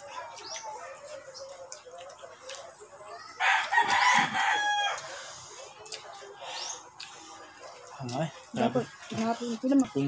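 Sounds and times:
rooster crowing: 3.4s - 5.1s.

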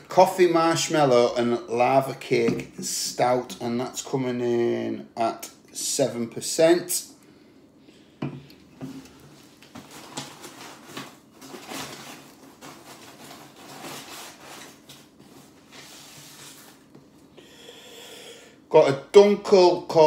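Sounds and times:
cardboard rubbing and scraping: 9.8s - 16.8s.

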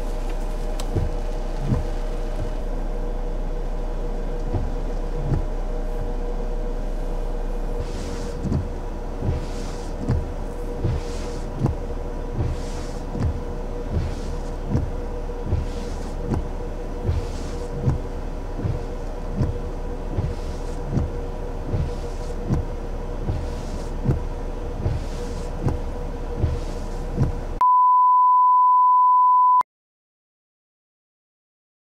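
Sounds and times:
windshield wipers sweeping: 0.0s - 27.6s
faint hum: 0.0s - 27.8s
loud steady beep tone: 27.6s - 29.6s.

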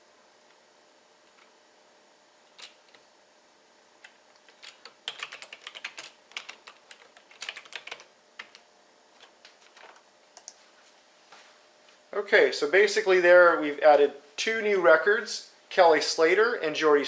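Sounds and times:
keyboard typing clicks: 4.0s - 8.6s, 9.2s - 10.6s.

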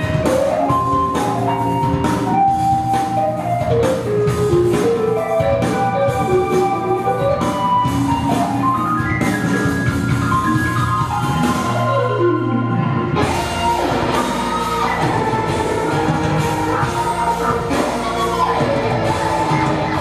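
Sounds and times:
steady bass line: 0.0s - 20.0s
drum beat: 13.2s - 20.0s.

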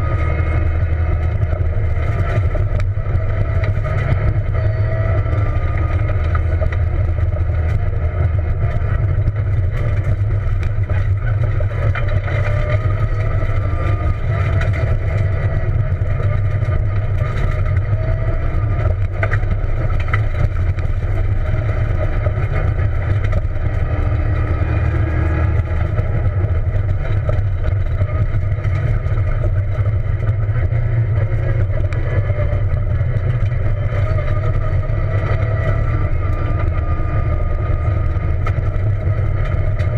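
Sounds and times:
car engine revving: 0.0s - 39.9s
low rumble: 0.0s - 39.9s.

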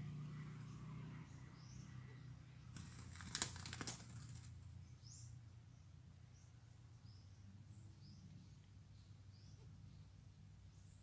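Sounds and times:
small birds chirping: 0.0s - 11.0s
dove wings flapping: 2.7s - 4.6s.

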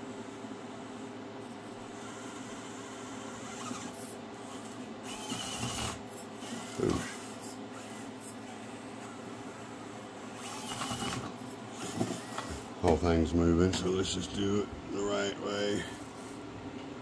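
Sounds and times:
small electric motor whining: 1.4s - 12.7s.

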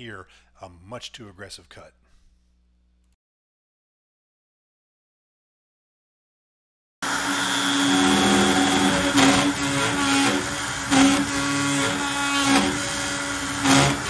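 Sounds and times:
cnc router spindle tone: 7.0s - 14.0s
machine vibrating under overloaded cut: 7.1s - 14.0s.

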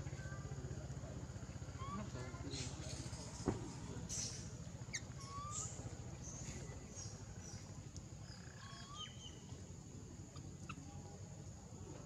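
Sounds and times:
steady low hum: 0.0s - 12.0s
short high chirping calls: 4.1s - 6.4s, 8.3s - 9.5s.

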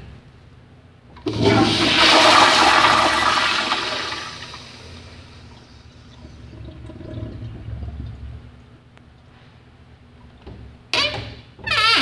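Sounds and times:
toilet bowl refilling: 1.2s - 8.6s
toilet flushing: 1.2s - 8.7s.

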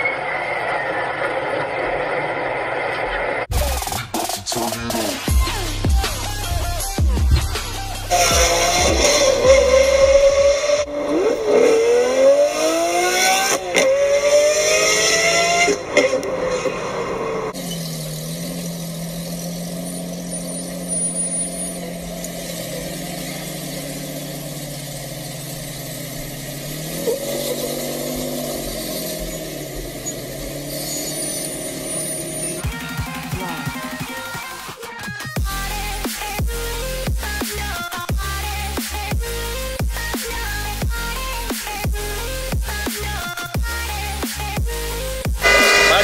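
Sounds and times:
supercar engine revving: 4.6s - 34.0s, 44.1s - 46.0s
off-road vehicle engine running low: 5.3s - 13.0s, 15.8s - 34.0s, 41.8s - 46.0s.

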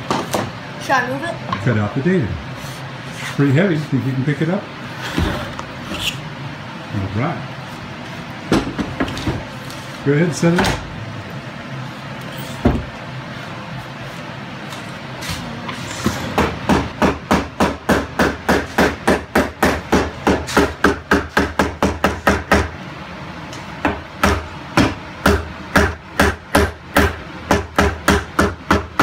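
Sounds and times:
mallet striking wood chisel: 16.4s - 22.7s, 23.8s - 29.0s.

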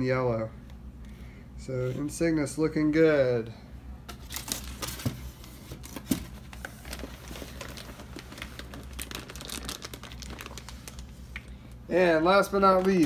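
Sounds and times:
plastic bags rustling: 4.2s - 13.0s.

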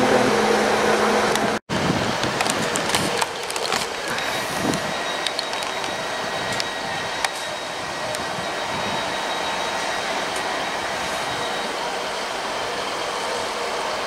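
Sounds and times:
train wheels rumbling on rail: 0.0s - 14.0s
sharp clicks and rattles: 2.2s - 6.0s.

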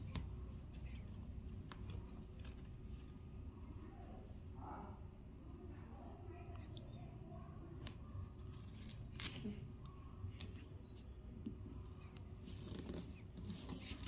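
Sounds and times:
crayon scratchy clicks and rustles: 0.0s - 3.9s, 7.8s - 14.0s.

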